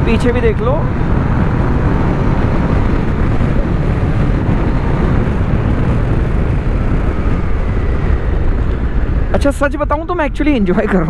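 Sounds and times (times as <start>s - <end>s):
motorcycle engine: 0.0s - 9.4s
road noise: 0.0s - 11.0s
wind rushing over microphone: 0.0s - 11.0s.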